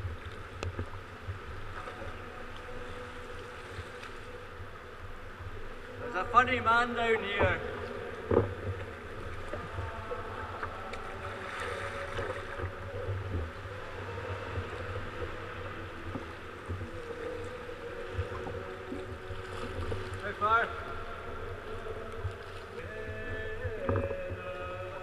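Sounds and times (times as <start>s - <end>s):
water sloshing and lapping: 0.0s - 25.0s
paddle splashes and knocks: 6.9s - 25.0s.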